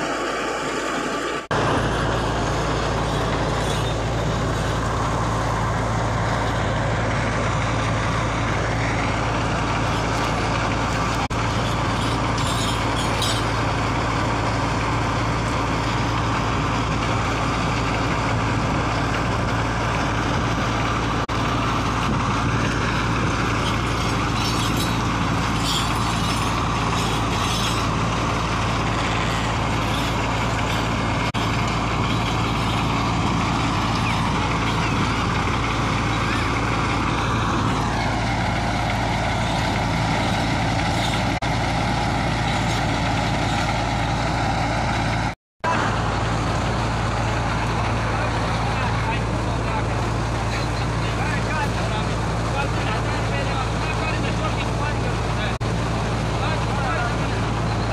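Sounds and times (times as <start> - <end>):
engine droning: 0.0 - 57.9.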